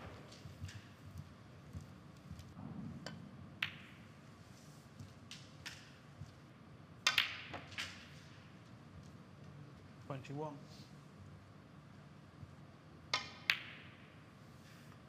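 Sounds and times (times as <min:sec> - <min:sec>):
quiet arena hush: 0:00.0 - 0:15.0
snooker balls clacking: 0:03.0 - 0:04.4, 0:07.0 - 0:08.4, 0:13.0 - 0:14.2
cue tip striking ball: 0:07.0 - 0:08.0, 0:13.1 - 0:14.0.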